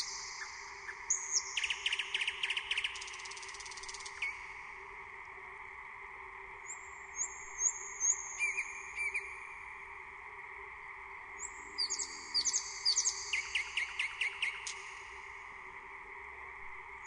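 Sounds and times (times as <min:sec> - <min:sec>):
nightingale singing: 0:00.0 - 0:04.5, 0:06.7 - 0:09.4, 0:11.4 - 0:14.9
faint background noise: 0:00.0 - 0:17.0.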